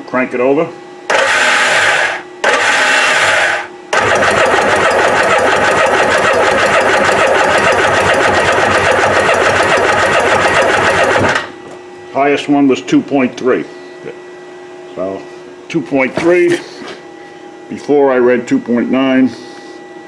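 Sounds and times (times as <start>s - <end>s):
starter motor cranking engine: 1.1s - 11.5s.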